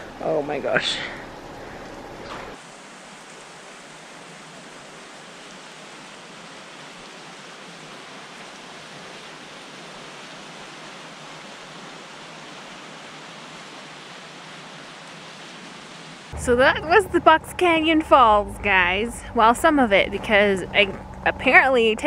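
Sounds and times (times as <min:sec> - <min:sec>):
waterfall rushing hiss: 0:02.6 - 0:16.4.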